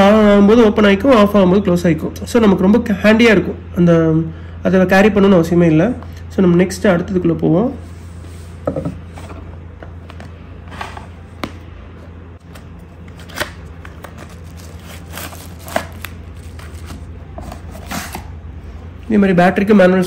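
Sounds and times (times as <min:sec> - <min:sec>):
steady low hum: 0:00.0 - 0:20.0
plastic wrapping crinkling: 0:13.0 - 0:18.1.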